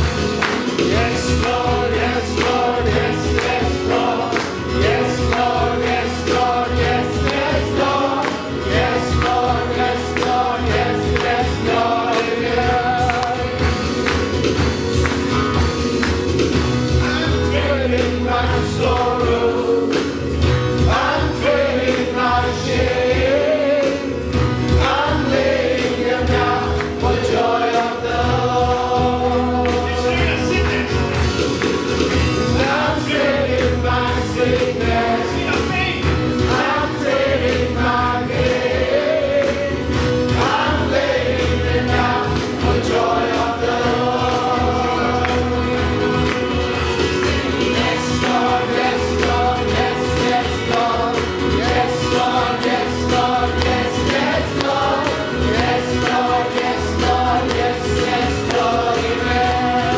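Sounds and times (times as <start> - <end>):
choir singing: 0.0 - 16.0, 16.9 - 31.0, 31.6 - 59.9
electric and acoustic guitars: 0.0 - 59.9
keyboard: 0.0 - 59.9
steady drum beat: 0.0 - 59.9
man singing lead: 17.0 - 20.2, 26.4 - 31.0.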